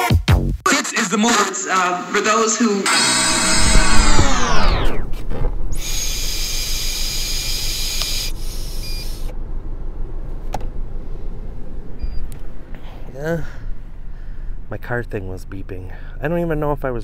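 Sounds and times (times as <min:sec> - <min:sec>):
low handling rumble: 0:03.0 - 0:17.0
faint short beep: 0:12.0 - 0:12.3.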